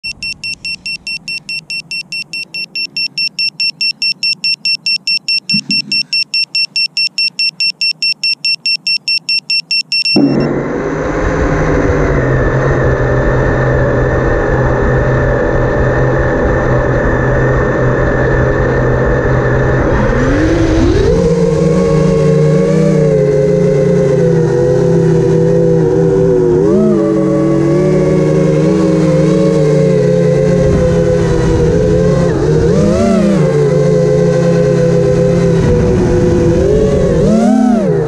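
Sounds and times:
short high electronic beeps: 0.0s - 10.5s
drone motors whining: 0.0s - 38.0s.

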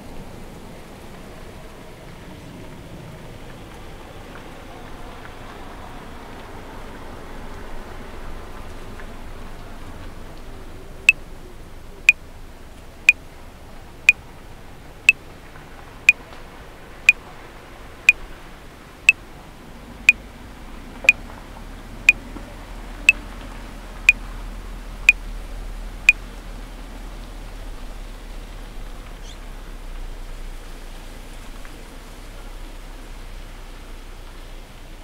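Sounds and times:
faint background noise: 0.0s - 35.0s.

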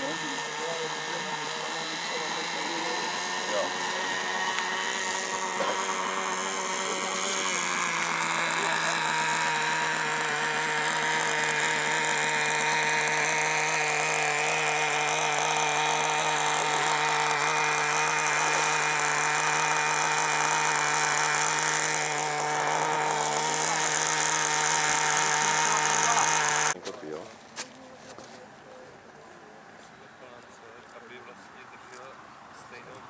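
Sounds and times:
small electric motor whining: 0.0s - 26.8s.

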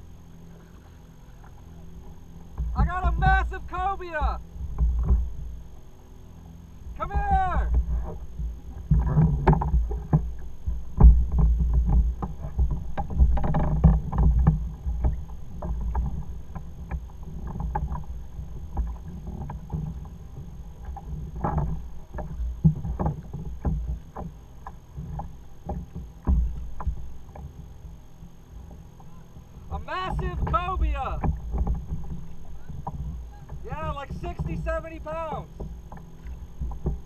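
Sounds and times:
wind rumble on microphone: 6.8s - 37.0s
knocks on kayak hull: 7.2s - 20.2s, 20.8s - 27.5s.

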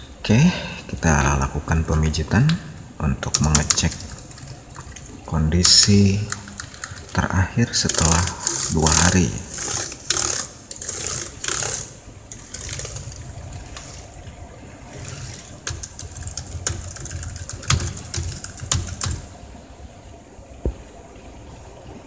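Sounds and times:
keyboard key clicks: 15.1s - 19.3s.

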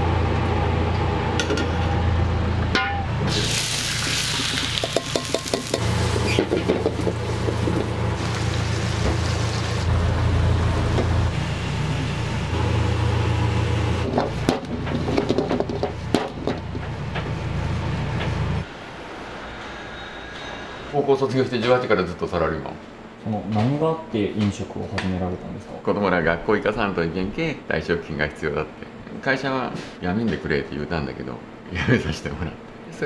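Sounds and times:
sizzling: 3.2s - 14.0s
metal pans clanking: 4.8s - 7.9s.

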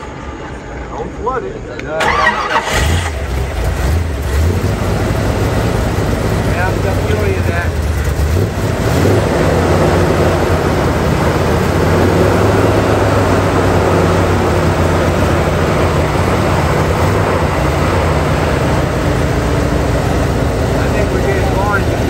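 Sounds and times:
vehicle engine droning: 0.0s - 22.0s.

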